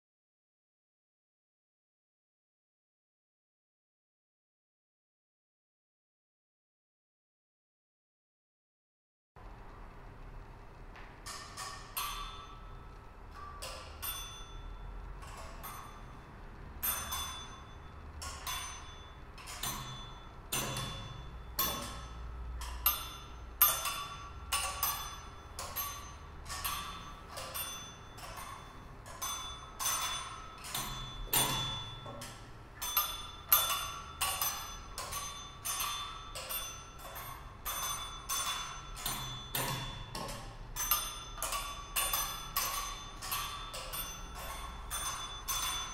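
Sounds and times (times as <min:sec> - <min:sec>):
faint steady hum: 0:09.4 - 0:45.9
bell-like mallet percussion strikes: 0:13.6 - 0:45.9.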